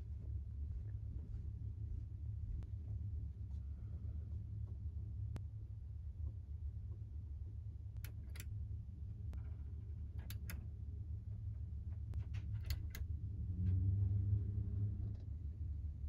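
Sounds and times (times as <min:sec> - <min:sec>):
steady low hum: 0:00.0 - 0:16.0
push buttons clicking: 0:08.0 - 0:08.5, 0:10.2 - 0:10.6, 0:12.6 - 0:13.0.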